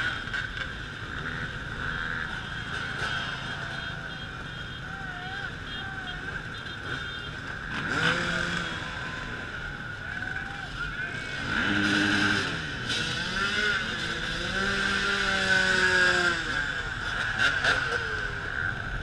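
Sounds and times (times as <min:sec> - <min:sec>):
dirt bikes revving past: 0:00.0 - 0:04.5, 0:05.4 - 0:19.0.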